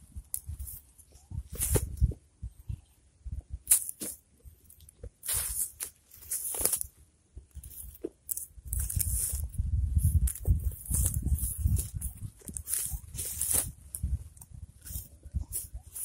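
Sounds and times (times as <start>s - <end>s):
garden fork crunching into soil: 3.7s - 6.9s, 7.6s - 14.2s, 14.8s - 16.0s
footsteps on grass: 5.2s - 6.9s, 10.1s - 13.8s.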